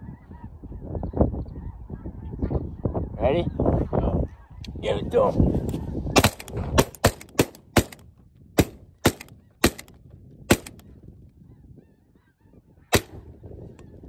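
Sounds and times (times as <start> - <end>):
geese calling overhead: 0.0 - 6.4, 10.6 - 14.0
shotgun blasts: 6.2 - 8.0, 8.6 - 10.8, 12.9 - 13.3.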